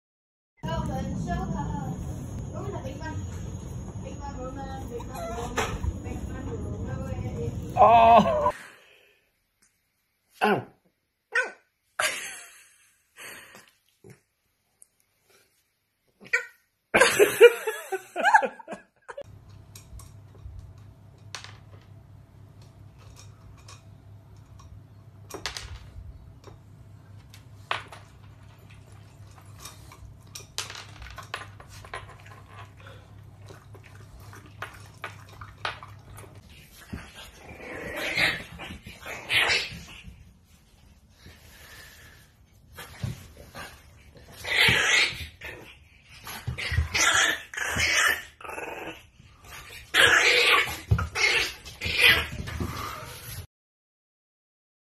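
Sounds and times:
low steady hum: 0.6 - 8.5
man saying oww: 7.8 - 8.5.

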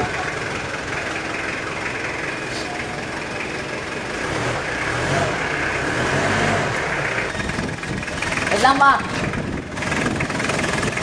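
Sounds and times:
diesel engine idling: 0.0 - 11.0.

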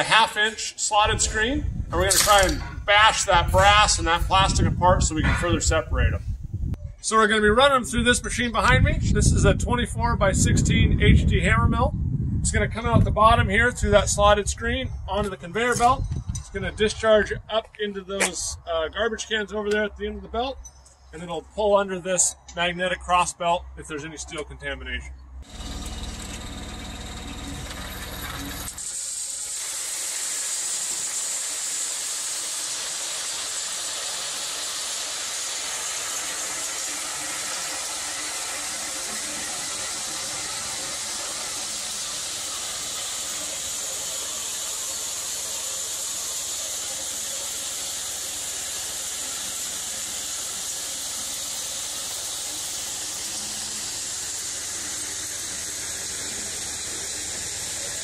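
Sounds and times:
hammer mill grinding shells: 2.0 - 4.2, 25.4 - 58.0.

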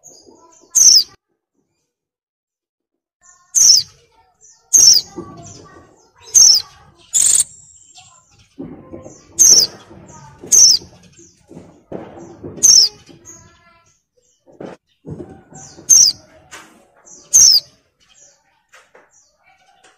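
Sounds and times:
bird soft chatter: 0.0 - 1.2, 3.2 - 19.9
bird high falling calls: 6.3 - 8.2.

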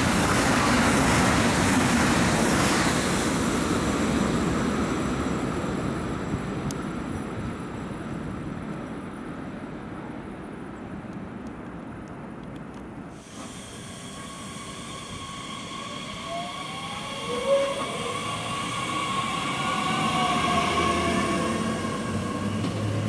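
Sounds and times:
distant train rumbling: 0.0 - 10.5, 13.1 - 23.0
electric train whine: 13.1 - 23.0.

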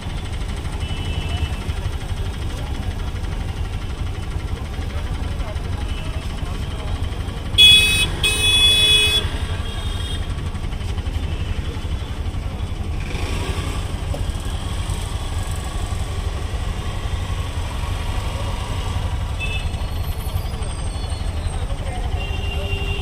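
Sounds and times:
road traffic rumble: 0.0 - 23.0
vehicle horn honking: 7.6 - 10.3, 19.4 - 19.8, 22.1 - 23.0.

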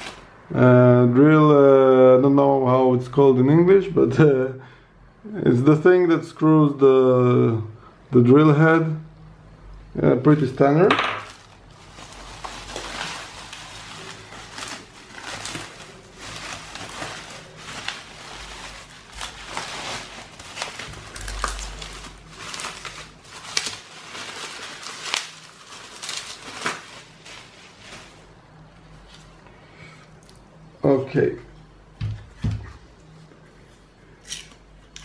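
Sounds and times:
plastic packaging crinkling: 0.0 - 0.4, 10.3 - 29.3.

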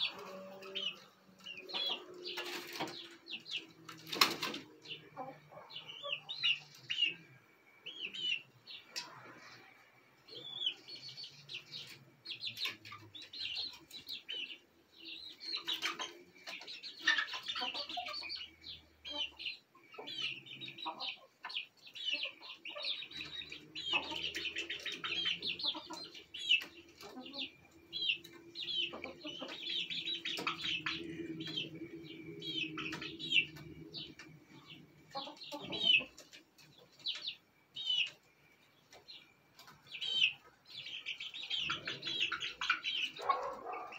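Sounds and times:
chicks peeping: 0.0 - 43.9
wings fluttering: 3.9 - 4.7.

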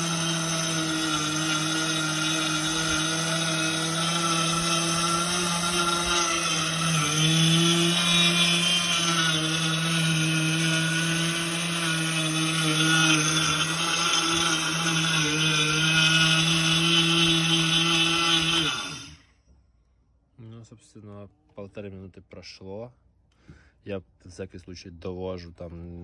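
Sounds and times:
grain grinding: 0.0 - 19.2
grain mill motor hum: 0.0 - 19.2.

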